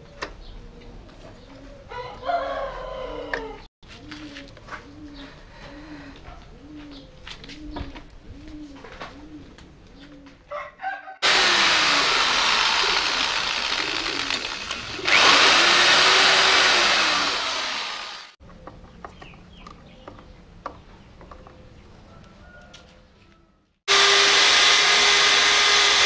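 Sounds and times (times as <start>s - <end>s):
dove cooing: 0.5s - 10.9s
electric drill boring into wood: 11.2s - 18.4s, 23.9s - 26.0s.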